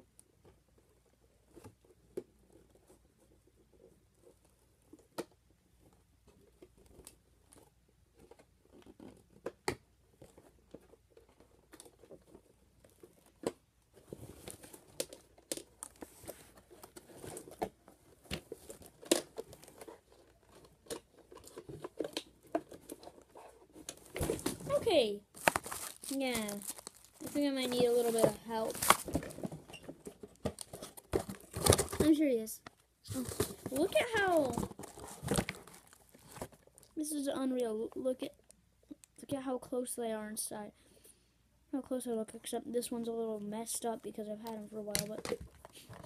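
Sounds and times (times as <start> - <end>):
cardboard and plastic rustling: 0.4 - 37.6, 43.6 - 46.0
packaging crinkling and tearing: 18.3 - 32.2, 33.1 - 36.9.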